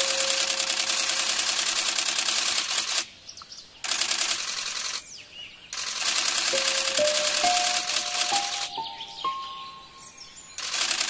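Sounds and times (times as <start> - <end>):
fast rattling buzz: 0.0 - 3.1, 3.8 - 5.0, 5.7 - 8.8, 10.6 - 11.0
faint high bird chirps: 4.8 - 11.0
held tone: 6.5 - 10.4.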